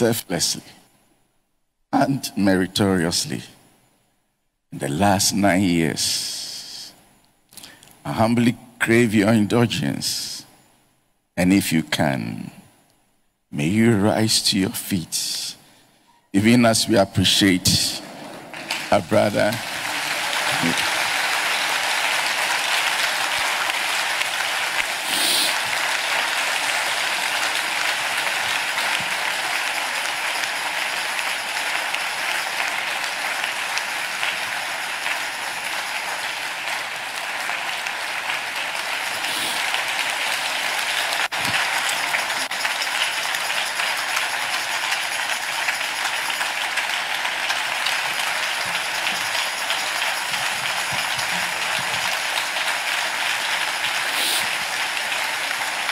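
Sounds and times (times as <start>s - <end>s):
audience applauding: 16.8s - 55.9s.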